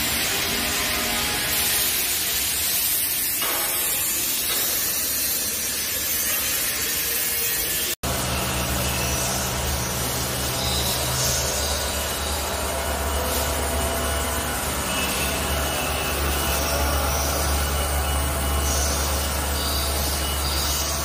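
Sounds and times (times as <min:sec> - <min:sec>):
hissing machine noise: 0:00.0 - 0:21.0
low machine hum: 0:08.0 - 0:21.0.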